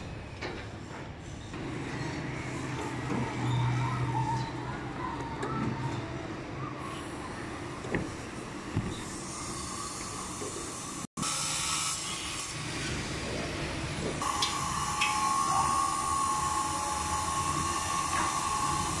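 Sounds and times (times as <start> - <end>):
traffic: 0.0 - 11.1
construction machinery: 0.0 - 19.0
high-pitched machine whine: 14.2 - 19.0.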